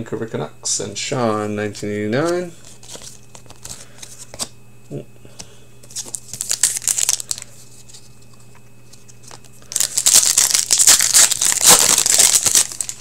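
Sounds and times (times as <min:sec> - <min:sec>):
wrapper crinkling and tearing: 0:06.0 - 0:07.5, 0:09.2 - 0:13.0.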